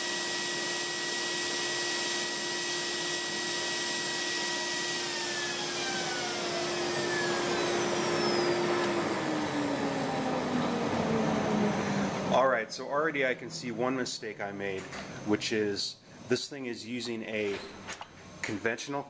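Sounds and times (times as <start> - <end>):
router spindle whine: 0.0 - 12.4
dust collector hum: 0.0 - 17.5.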